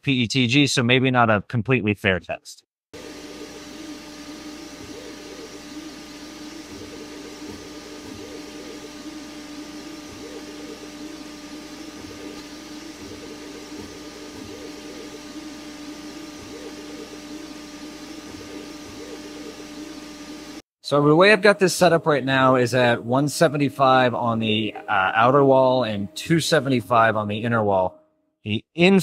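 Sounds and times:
fan hum: 0:03.0 - 0:20.6
stepper motors whining: 0:03.0 - 0:20.6.

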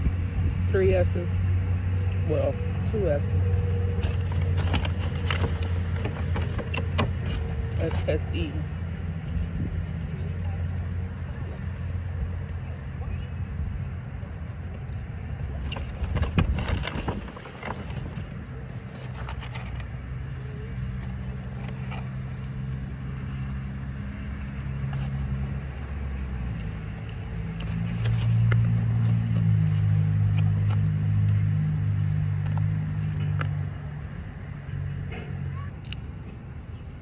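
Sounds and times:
vehicle engine humming: 0:00.0 - 0:37.0
rustling: 0:04.0 - 0:08.1, 0:15.7 - 0:19.9.

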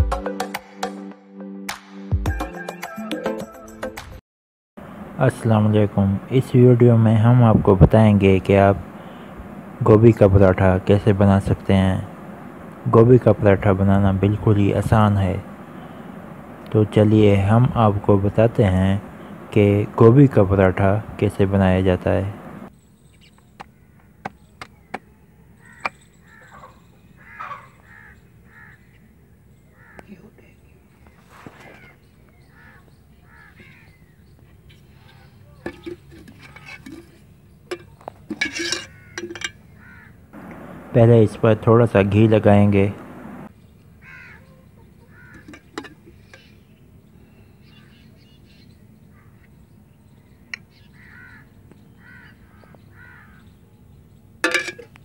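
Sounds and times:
crows cawing: 0:09.0 - 0:09.4, 0:15.6 - 0:16.2, 0:23.6 - 0:24.3, 0:25.6 - 0:29.1, 0:29.7 - 0:30.2, 0:31.6 - 0:34.2, 0:38.4 - 0:40.4, 0:44.0 - 0:46.6, 0:47.6 - 0:49.6, 0:50.5 - 0:53.5.

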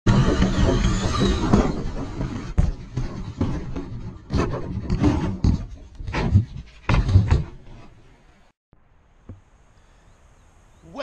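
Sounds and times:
toy truck thumping and scraping: 0:00.1 - 0:08.0
rough rumbling: 0:00.1 - 0:09.7.

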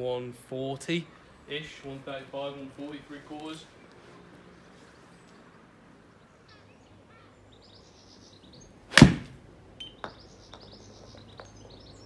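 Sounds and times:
golf club striking ball: 0:08.9 - 0:09.4.

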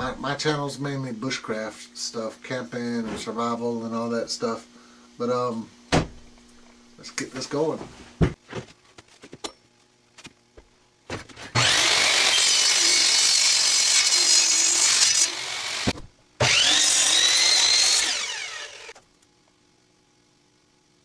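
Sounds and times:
power tool cutting wood: 0:11.5 - 0:19.0.

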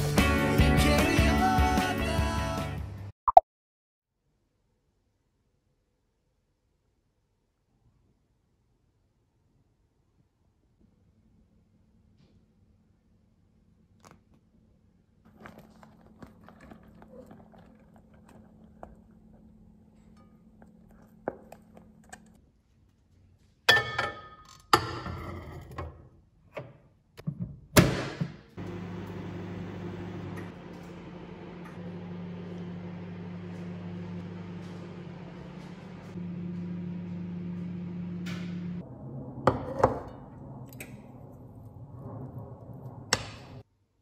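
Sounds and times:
microwave oven humming: 0:28.6 - 0:40.0.

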